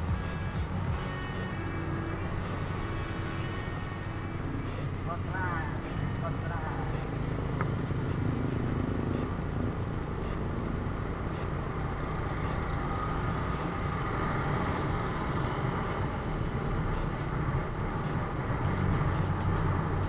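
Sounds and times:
motorcycle engine: 0:00.0 - 0:20.0
scooters and motorbikes in traffic: 0:00.0 - 0:20.0.

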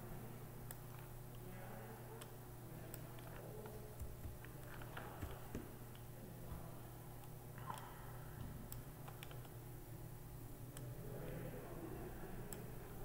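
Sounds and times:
low steady hum: 0:00.0 - 0:13.0
computer mouse clicks: 0:02.2 - 0:06.1, 0:07.2 - 0:09.6.

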